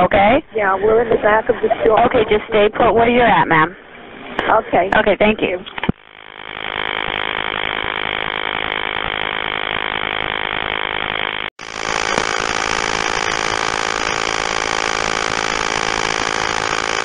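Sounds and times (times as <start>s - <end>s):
electronic buzz on telephone line: 5.9s - 17.0s.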